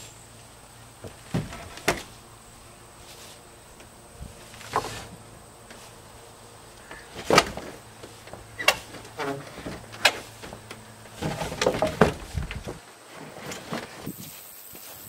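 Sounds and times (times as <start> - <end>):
wooden poles knocking together: 1.0 - 2.3, 3.7 - 14.1.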